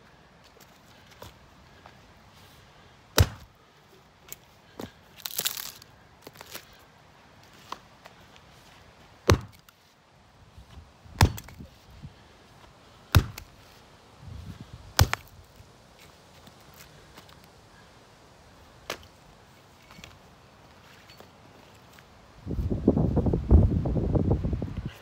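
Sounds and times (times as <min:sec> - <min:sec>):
axe chopping wooden boards: 0:03.1 - 0:03.5, 0:09.2 - 0:09.7, 0:11.1 - 0:11.7, 0:13.1 - 0:13.6, 0:15.0 - 0:15.4.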